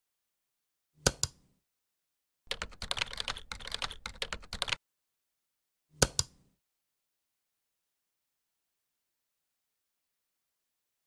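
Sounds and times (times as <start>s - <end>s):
typing on computer keyboard: 2.5s - 4.8s
mouse clicks: 6.0s - 6.4s.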